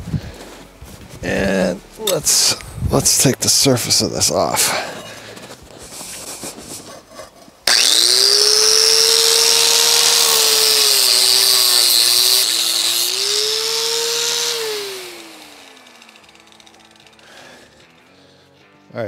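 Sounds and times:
grinder spinning down: 7.6 - 18.0
angle grinder grinding metal: 7.6 - 18.2.

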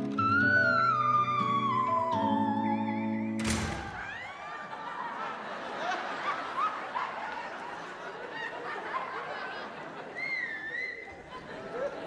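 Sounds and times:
audience laughing: 4.0 - 12.0.

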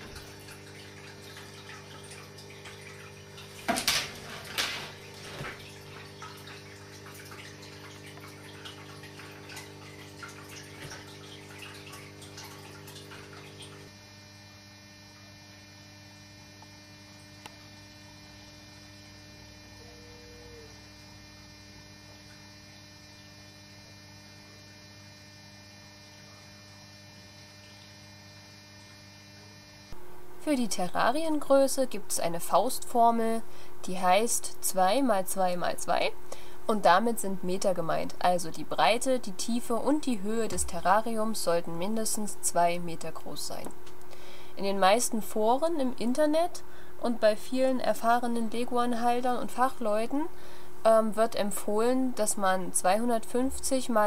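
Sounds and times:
electrical mains hum: 0.0 - 54.0.

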